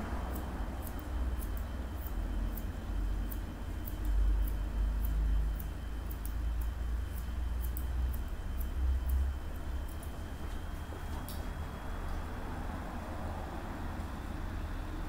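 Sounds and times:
low steady rumble: 0.0s - 15.0s
scissors snipping hair: 0.3s - 2.7s, 3.3s - 9.2s.

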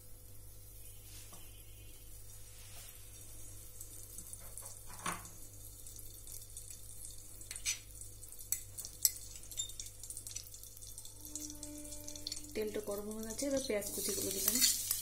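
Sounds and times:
oil crackling and popping: 3.1s - 15.0s.

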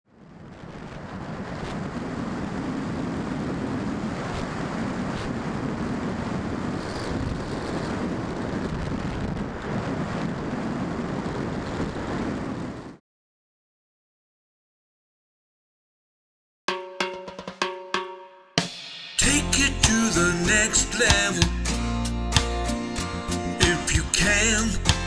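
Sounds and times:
rush of air: 0.2s - 13.0s.

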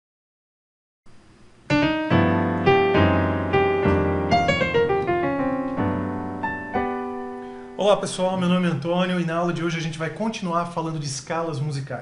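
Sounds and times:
digital piano chords and runs: 1.6s - 10.1s.

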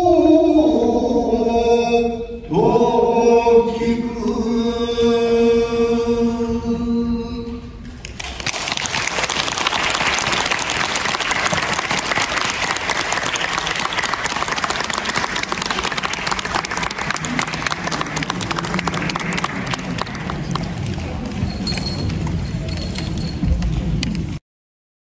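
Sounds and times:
audience applause: 8.1s - 21.2s.

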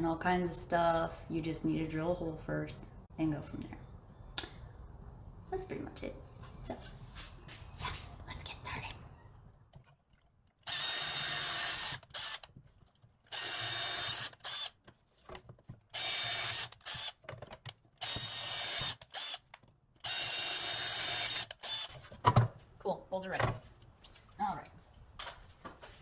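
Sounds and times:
cordless drill boring into board: 10.6s - 12.6s, 13.3s - 14.8s, 15.9s - 17.2s, 18.0s - 19.4s, 20.0s - 21.9s.

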